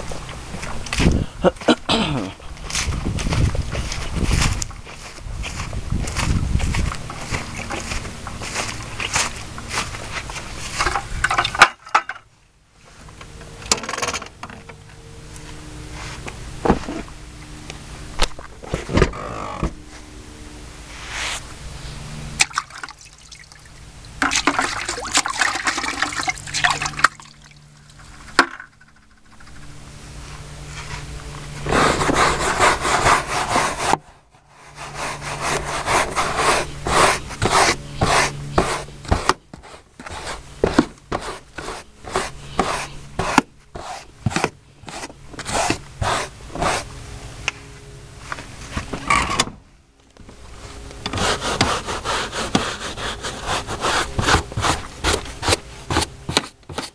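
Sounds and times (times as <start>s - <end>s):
brush scrubbing carpet: 20.9s - 21.4s, 30.7s - 46.9s, 51.1s - 56.9s.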